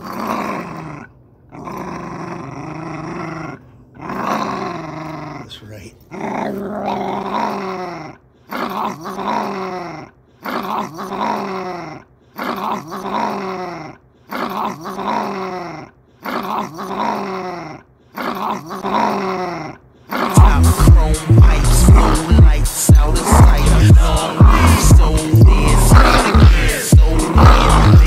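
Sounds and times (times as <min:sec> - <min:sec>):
small dog growling: 0:00.0 - 0:28.0
hip-hop music with heavy bass: 0:20.3 - 0:28.0.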